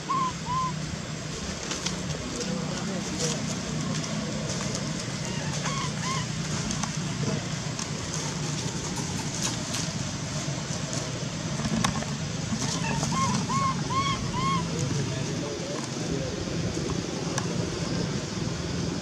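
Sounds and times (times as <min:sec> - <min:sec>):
low background hum and hiss: 0:00.0 - 0:19.0
short squeaky calls: 0:05.2 - 0:06.4.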